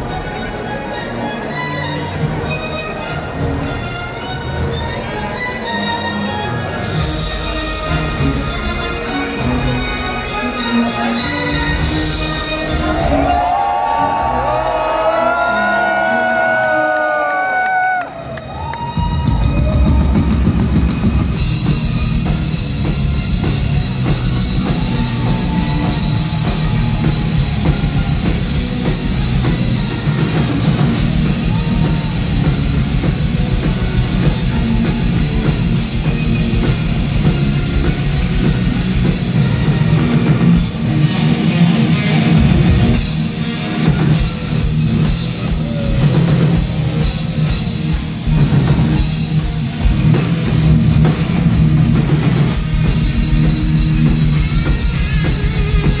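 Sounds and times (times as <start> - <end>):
metal band with orchestra: 0.0 - 17.3, 18.9 - 56.0
string section: 0.0 - 17.5
bass guitar: 1.4 - 16.0, 18.9 - 56.0
drum kit: 18.9 - 56.0.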